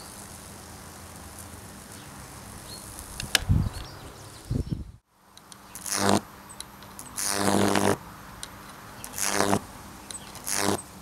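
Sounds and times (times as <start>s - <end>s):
high-voltage arcing crackle: 0.0s - 3.7s, 5.5s - 8.0s, 9.0s - 11.0s.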